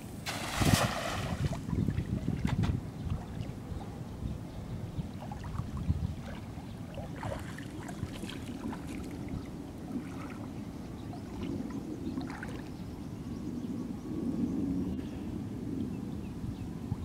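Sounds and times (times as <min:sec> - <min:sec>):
steady low rumble: 0:00.0 - 0:17.0
small splashes and drips: 0:00.3 - 0:03.6, 0:05.2 - 0:10.6, 0:11.2 - 0:12.7
water sloshing around wading legs: 0:05.2 - 0:12.7.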